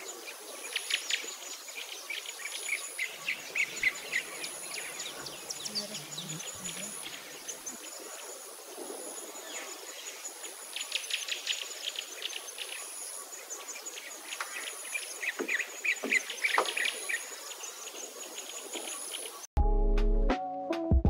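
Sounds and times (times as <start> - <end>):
bird chirps: 0.0 - 8.1, 10.8 - 19.5.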